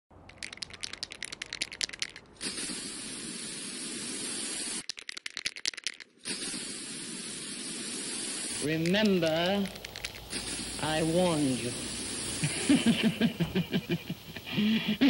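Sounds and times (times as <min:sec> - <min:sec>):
spray can rattling when shaken: 0:00.2 - 0:14.4
spray hiss: 0:02.4 - 0:04.9, 0:06.2 - 0:15.0.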